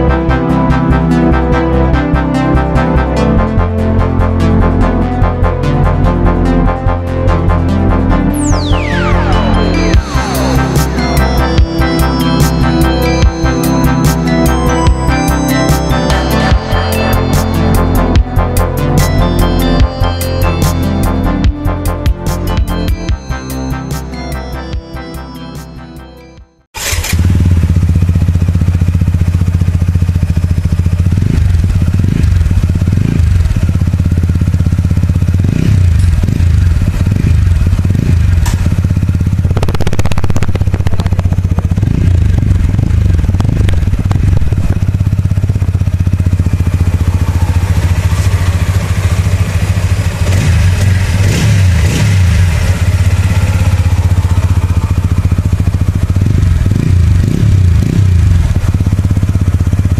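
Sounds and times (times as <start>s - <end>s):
motorcycle engine idling with blips: 26.8s - 59.9s.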